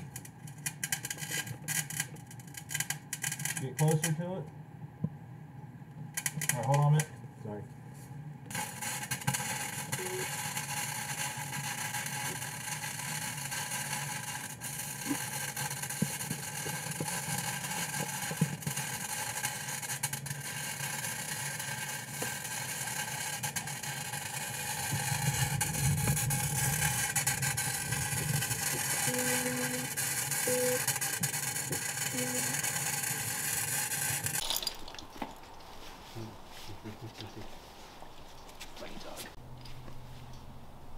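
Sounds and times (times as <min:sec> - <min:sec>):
welding arc crackling: 0:00.0 - 0:04.3, 0:06.1 - 0:07.1, 0:08.4 - 0:35.6.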